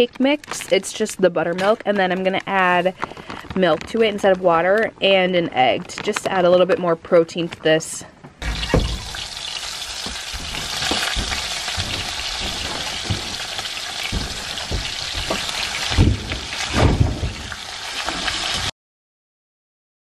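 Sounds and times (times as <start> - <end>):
knocks: 8.4 - 9.3, 9.9 - 17.6
bacon sizzling in a frying pan: 8.4 - 18.7.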